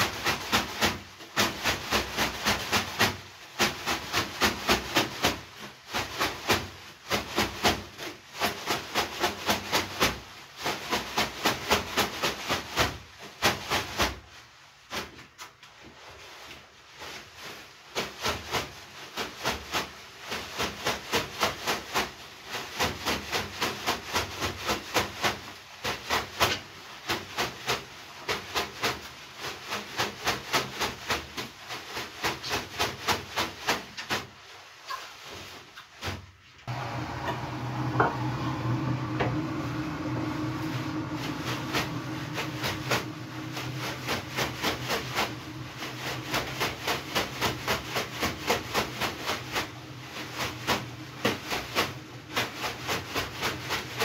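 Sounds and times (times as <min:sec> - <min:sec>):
steady rushing sound: 0:36.7 - 0:53.7
wet leafy brooms slapping skin: 0:40.9 - 0:54.0.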